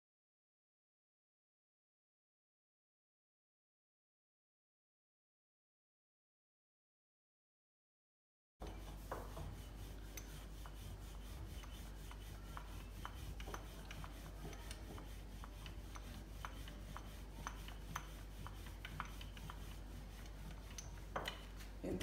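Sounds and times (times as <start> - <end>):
rolling pin rubbing on dough: 8.6 - 21.8
low steady hum: 8.6 - 22.0.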